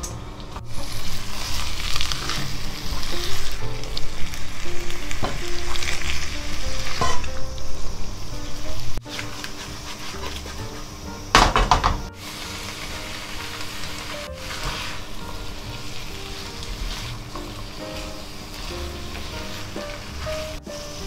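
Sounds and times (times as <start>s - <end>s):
food sizzling in a wok: 0.7s - 21.0s
spatula scraping pan: 9.1s - 11.0s, 12.2s - 21.0s.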